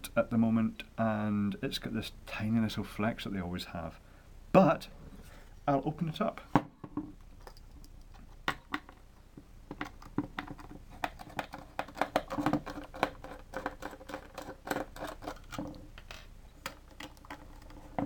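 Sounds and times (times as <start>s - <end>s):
screwdriver clicking and scratching: 9.8s - 15.7s, 16.6s - 18.0s.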